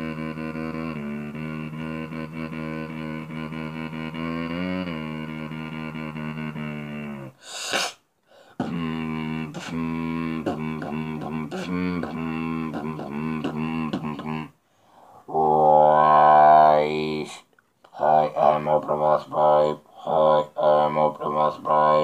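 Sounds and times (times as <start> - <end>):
hissing breath: 7.4 - 8.6, 14.6 - 15.3
robotic beatboxing buzz: 8.6 - 14.5.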